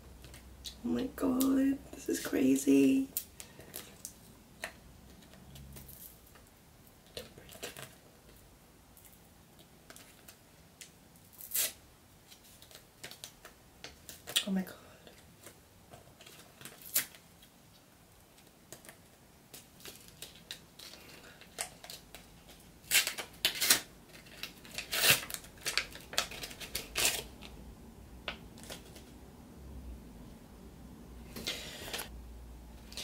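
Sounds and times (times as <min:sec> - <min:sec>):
foil sachet crinkling and tearing: 0:19.8 - 0:27.3.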